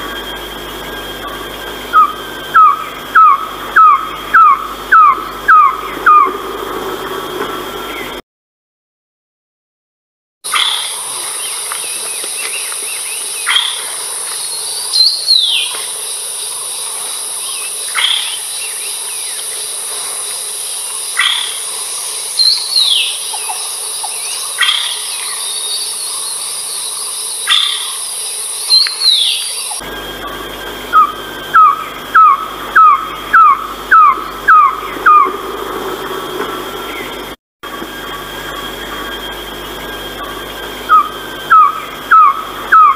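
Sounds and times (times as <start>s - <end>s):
bird calling falling notes: 0.0s - 8.2s, 28.7s - 39.6s, 40.4s - 42.9s
high insect drone: 0.0s - 8.2s, 10.5s - 42.9s.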